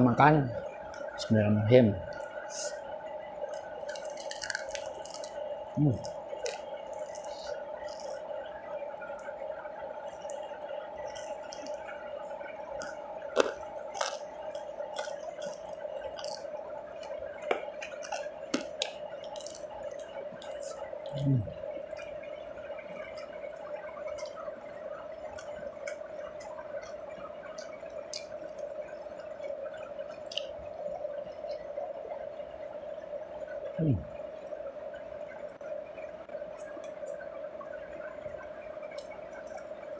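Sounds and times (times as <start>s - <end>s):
steady hum: 0.0s - 39.9s
wet chewing: 3.4s - 5.4s, 6.0s - 8.3s, 11.0s - 21.2s, 25.2s - 30.6s.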